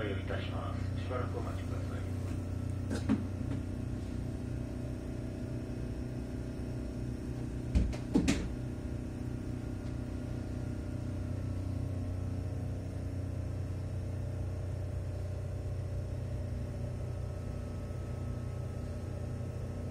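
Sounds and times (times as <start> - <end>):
electric train low hum: 0.0 - 19.9
knock: 7.7 - 8.5.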